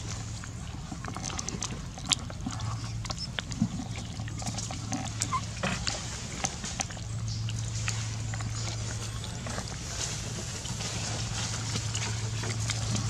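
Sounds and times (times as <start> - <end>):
steady low hum: 0.0 - 13.0
soft monkey calls: 5.0 - 6.0
rustling on dry leaves: 5.4 - 13.0.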